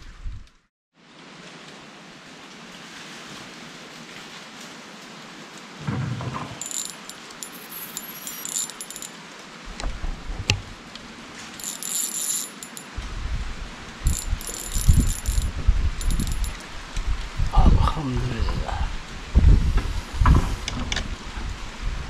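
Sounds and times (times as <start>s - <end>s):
steady rain hiss: 1.0s - 22.0s
fishing tackle clicking and jingling: 6.6s - 9.1s, 11.6s - 13.0s, 14.1s - 16.6s.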